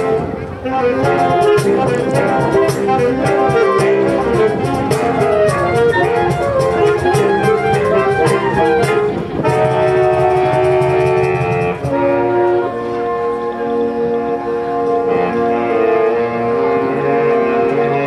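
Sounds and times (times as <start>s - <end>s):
cajon beat: 0.0s - 12.3s
saxophone ensemble playing chords: 0.0s - 18.0s.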